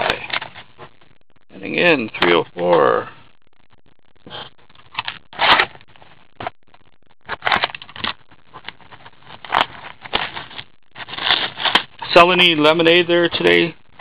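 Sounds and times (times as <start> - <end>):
cardboard and wrappers crinkling: 4.7 - 6.6, 7.2 - 12.2.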